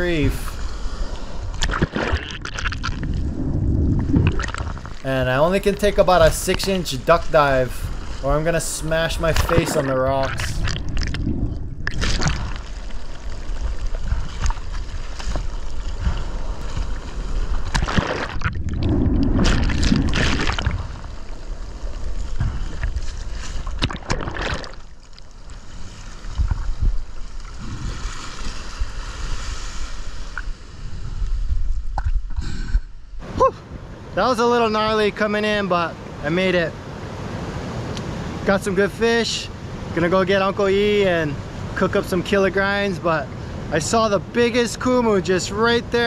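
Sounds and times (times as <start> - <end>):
whitewater splashing and gurgling: 0.0 - 31.7
surf churning over reef: 0.0 - 31.8, 33.2 - 46.0.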